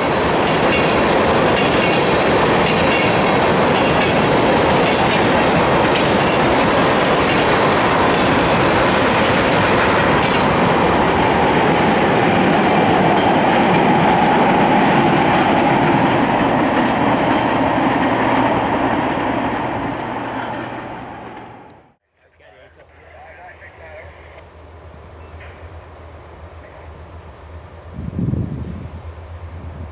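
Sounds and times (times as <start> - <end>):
train wheels clattering on rails: 0.0 - 21.7.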